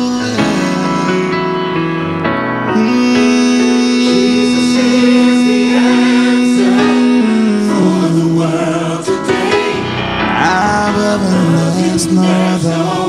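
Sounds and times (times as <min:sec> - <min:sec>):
gospel choir singing: 0:02.8 - 0:13.0
instrumental backing: 0:09.1 - 0:12.6.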